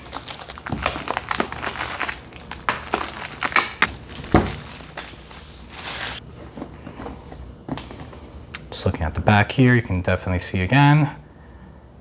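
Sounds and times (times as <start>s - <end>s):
packaging ripping and crumpling: 0.0s - 6.2s.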